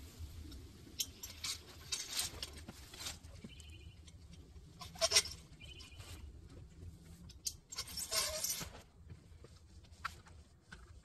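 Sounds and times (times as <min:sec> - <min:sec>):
metal frame rattling and squeaking: 0:01.0 - 0:06.2, 0:07.2 - 0:08.9.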